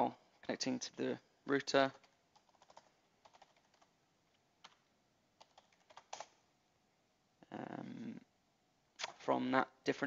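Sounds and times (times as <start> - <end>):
keystrokes on computer keyboard: 1.9 - 6.4.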